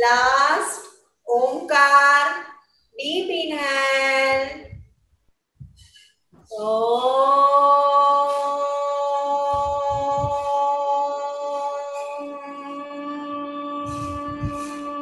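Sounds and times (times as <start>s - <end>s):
person chanting a held note: 6.5s - 15.0s.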